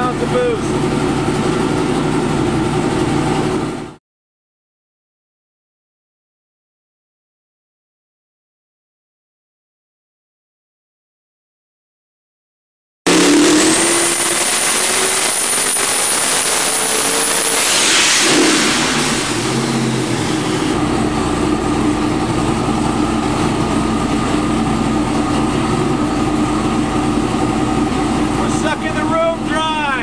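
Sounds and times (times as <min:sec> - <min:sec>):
engine at full throttle then idling: 0:00.0 - 0:04.0, 0:13.1 - 0:30.0.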